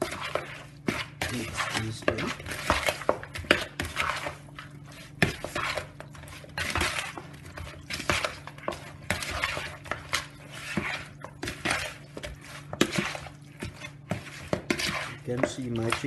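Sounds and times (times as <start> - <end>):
wet scraping of chicken: 0.0 - 16.0.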